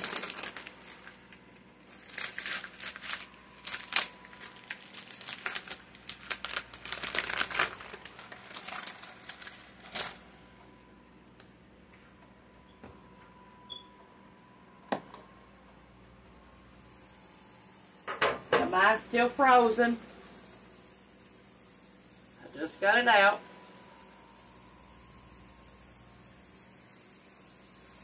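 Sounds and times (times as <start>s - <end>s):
plastic wrapping crinkling: 0.0s - 10.4s.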